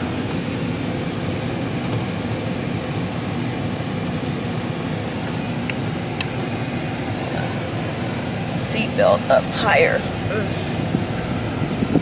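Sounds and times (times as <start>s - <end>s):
car cabin rumble: 0.0s - 12.0s.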